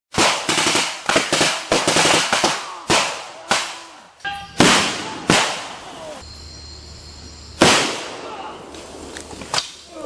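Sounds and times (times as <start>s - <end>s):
gunfire and explosion bangs: 0.1s - 3.7s, 4.6s - 5.8s, 7.6s - 8.4s.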